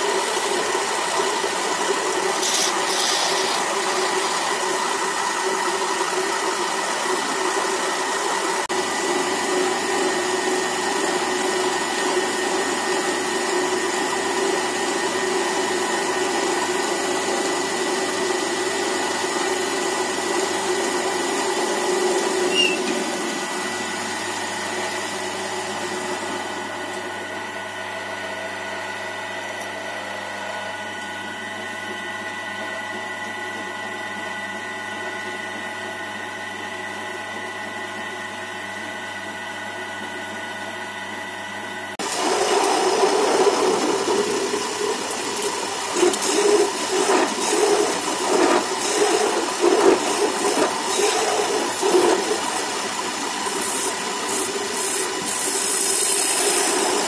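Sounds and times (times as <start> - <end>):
turning tool cutting wood: 0.0 - 10.2, 42.0 - 57.0
wood lathe running: 0.0 - 23.9, 42.0 - 57.0.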